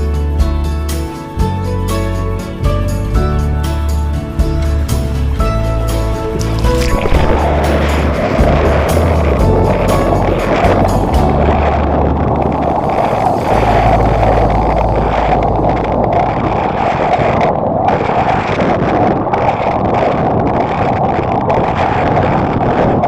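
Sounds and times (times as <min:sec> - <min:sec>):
wind buffeting microphone: 0:00.6 - 0:23.0
water rushing: 0:02.4 - 0:23.0
outboard motor running: 0:02.7 - 0:17.4.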